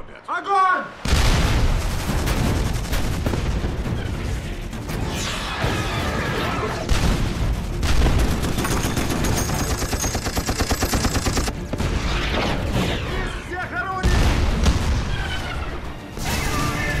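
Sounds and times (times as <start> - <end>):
film music score: 0.0 - 17.0
booming impacts: 1.0 - 4.8
heavy gunfire: 1.1 - 4.1, 6.8 - 13.1.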